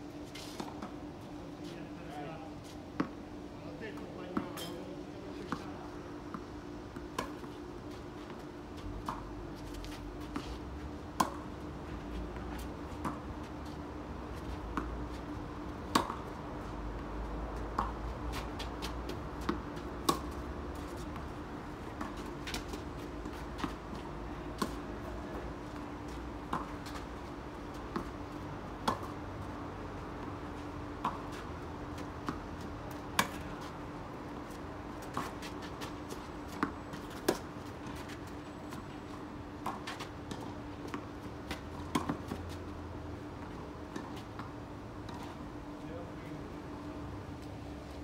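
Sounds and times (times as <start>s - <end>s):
tennis rackets striking ball: 15.8s - 16.3s, 19.4s - 20.4s, 39.6s - 42.4s.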